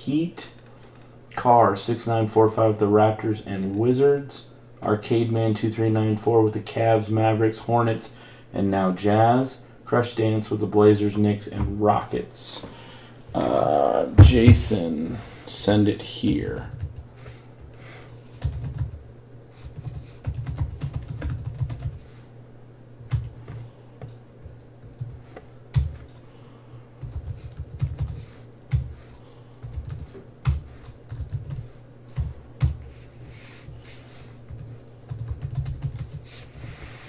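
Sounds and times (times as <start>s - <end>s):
typing on a keyboard: 18.4s - 19.0s, 19.6s - 22.0s, 27.0s - 28.9s, 34.5s - 36.2s.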